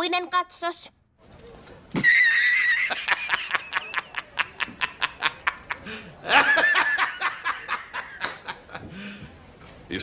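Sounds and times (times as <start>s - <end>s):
man laughing hard: 2.0s - 8.2s.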